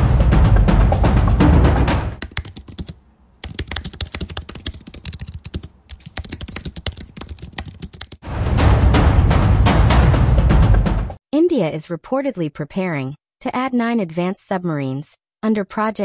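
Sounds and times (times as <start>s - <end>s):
loud intro music: 0.0s - 2.2s, 8.2s - 11.2s
typing on computer keyboard: 2.2s - 8.2s.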